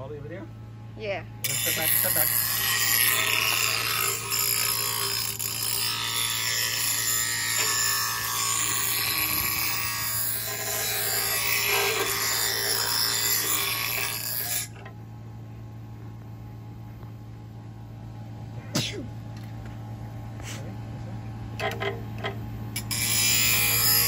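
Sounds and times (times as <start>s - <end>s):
bench grinder motor hum: 1.4s - 14.8s, 21.7s - 24.0s
metal blade grinding on wheel: 1.4s - 14.8s, 22.8s - 24.0s.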